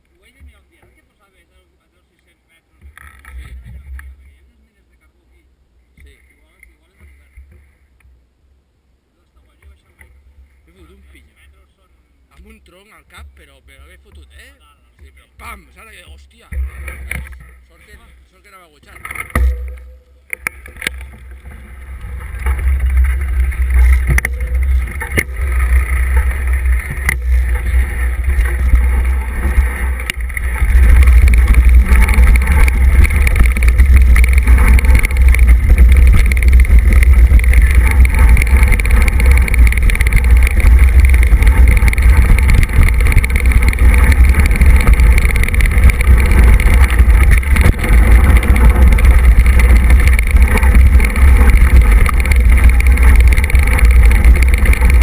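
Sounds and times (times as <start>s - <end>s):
wind and ride noise on microphone: 2.7s - 8.8s, 9.4s - 18.2s, 18.8s - 55.0s
bike knocking over bumps: 16.4s - 17.6s, 18.8s - 55.0s.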